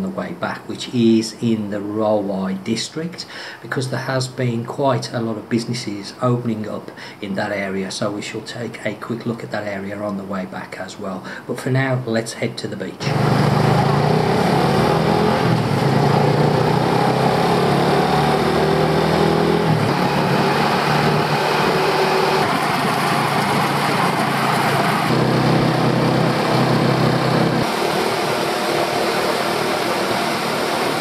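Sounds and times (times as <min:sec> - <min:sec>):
road noise: 0:13.0 - 0:31.0
scooter engine: 0:13.0 - 0:31.0.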